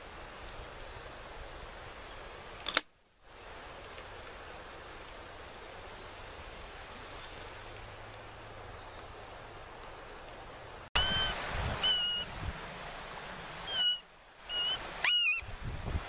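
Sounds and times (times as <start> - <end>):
bird chirps: 10.2 - 12.3, 13.7 - 15.4.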